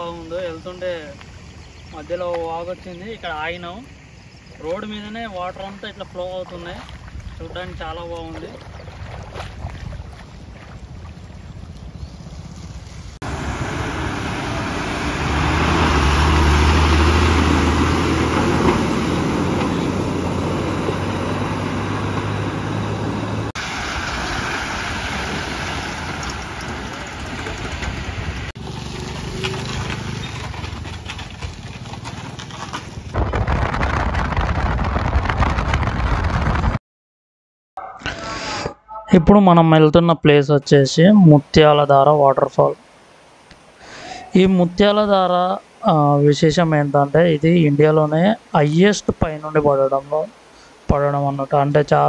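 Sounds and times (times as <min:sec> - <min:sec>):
vehicle engine low hum: 0:10.3 - 0:33.1
stream water rushing: 0:12.7 - 0:30.2, 0:41.4 - 0:52.0.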